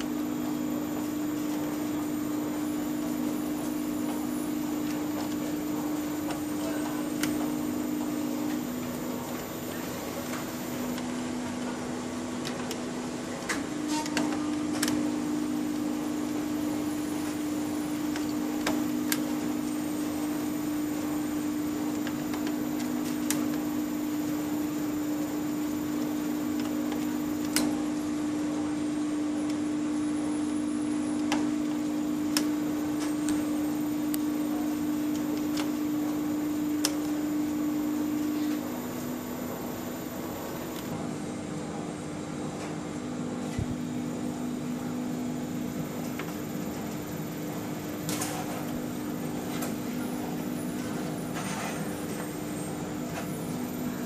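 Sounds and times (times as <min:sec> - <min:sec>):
washing machine hum: 0:00.0 - 0:54.0.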